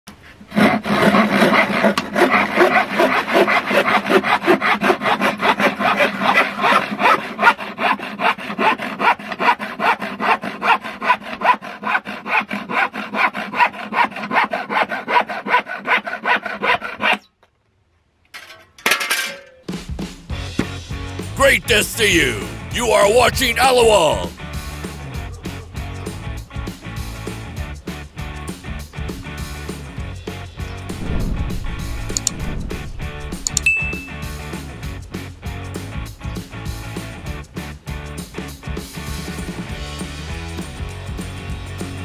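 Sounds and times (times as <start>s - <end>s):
hand saw cutting wood: 0.1s - 17.2s.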